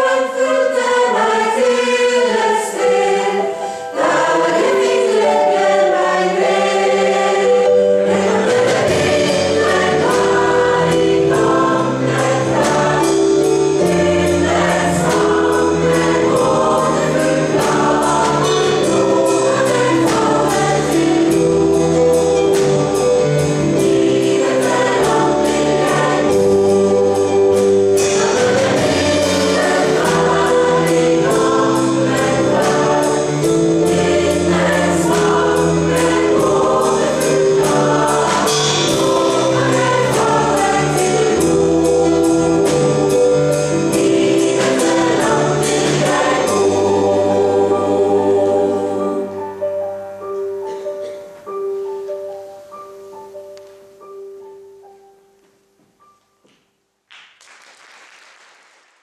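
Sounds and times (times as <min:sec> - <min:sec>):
mixed choir singing: 0:00.0 - 0:49.8
piano accompaniment: 0:00.0 - 0:57.0.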